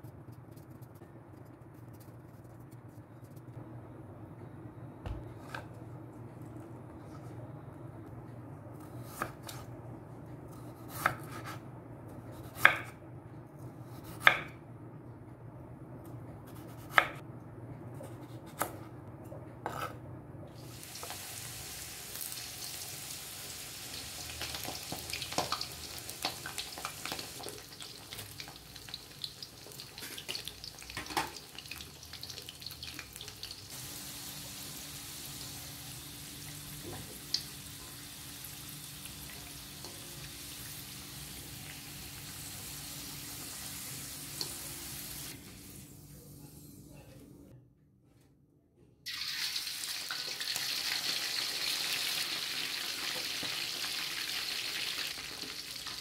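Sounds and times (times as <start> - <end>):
food sizzling in a pan: 20.6 - 46.0, 49.1 - 56.0.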